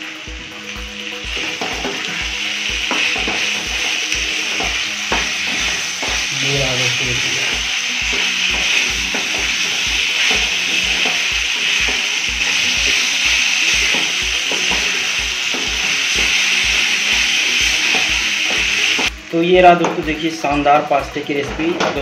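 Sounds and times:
pasta sizzling in a pan: 0:00.0 - 0:22.0.

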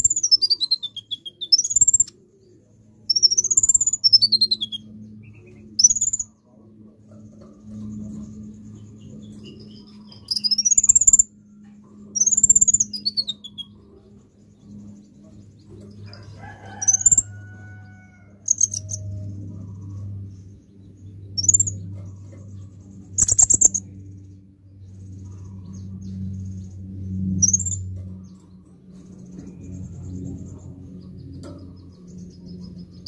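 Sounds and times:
sunbird calling with trills: 0:00.0 - 0:06.3, 0:07.9 - 0:11.4, 0:12.2 - 0:20.0, 0:20.9 - 0:22.3, 0:23.2 - 0:23.9
steady low hum: 0:00.0 - 0:33.0.

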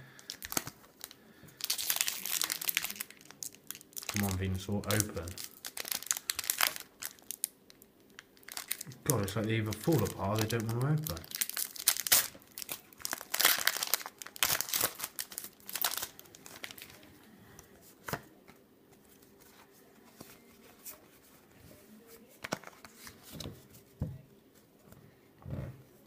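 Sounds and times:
plastic wrapper crinkling and tearing: 0:00.1 - 0:17.2
cards being handled: 0:17.9 - 0:24.1.

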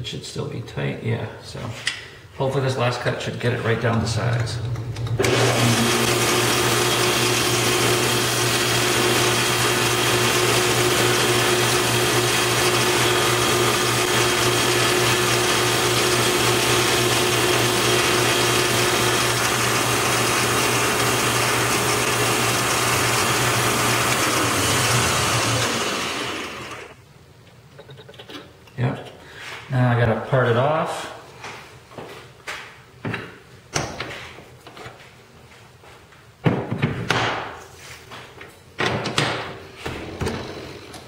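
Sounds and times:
metal lathe humming and whining: 0:04.8 - 0:27.0.

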